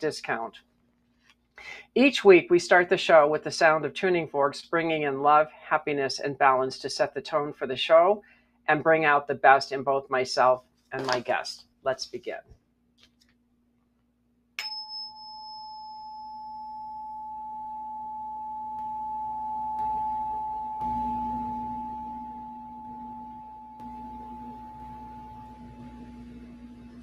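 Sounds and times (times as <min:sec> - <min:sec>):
tuning fork struck with click: 0:14.6 - 0:25.7
tuning forks ringing: 0:14.6 - 0:26.0
low steady tone: 0:14.6 - 0:27.0.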